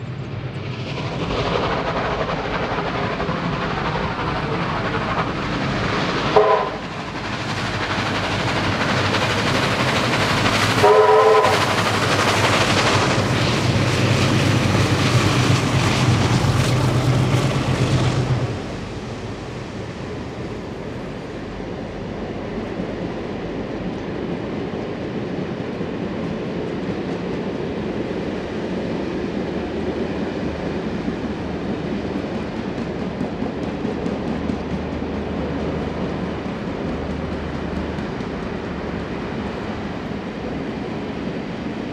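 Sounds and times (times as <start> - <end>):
steam locomotive exhaust beats: 0.0 - 41.9
steam whistle: 6.3 - 6.8, 10.8 - 11.7.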